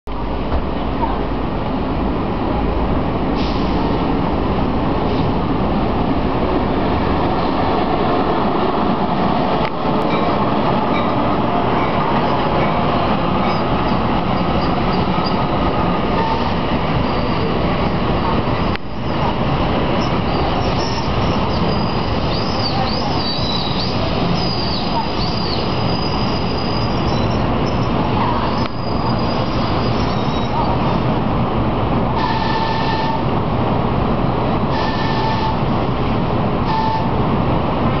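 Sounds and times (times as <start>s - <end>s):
train wheels rumbling on rail: 0.1s - 38.0s
high wheel squeal: 10.2s - 15.5s, 20.0s - 31.0s.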